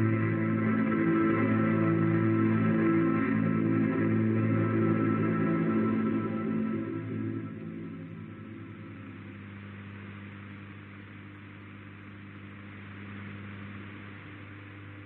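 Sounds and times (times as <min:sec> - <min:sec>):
steady low hum: 0:00.0 - 0:15.0
radio static hiss: 0:07.0 - 0:15.0.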